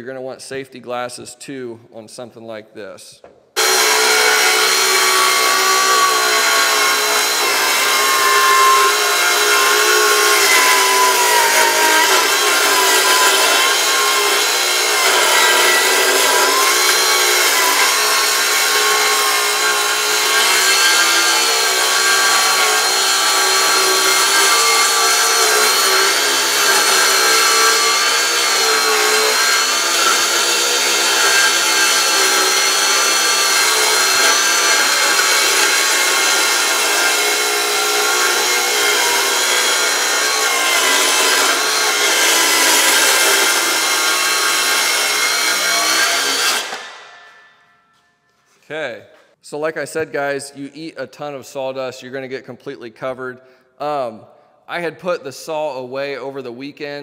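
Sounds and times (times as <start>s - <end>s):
circular saw cutting wood: 3.6s - 47.5s.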